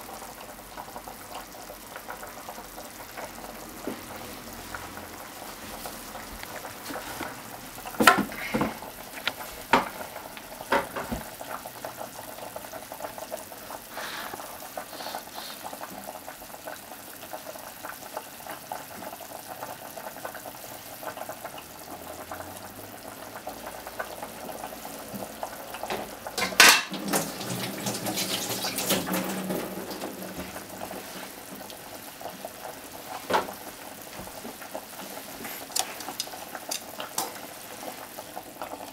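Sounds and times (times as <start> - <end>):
bubbling and splashing in pot: 0.0 - 38.9
pot simmering: 0.0 - 38.9
dishes and utensils knocking: 26.4 - 27.2.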